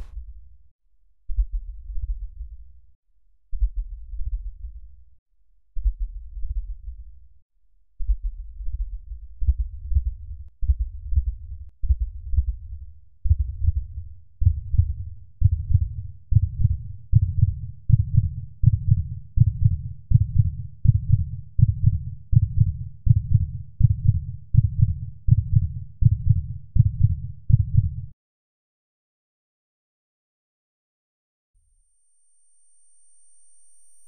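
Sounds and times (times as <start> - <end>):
deep heartbeat thumps: 3.5 - 4.8, 5.8 - 7.0, 8.0 - 28.0.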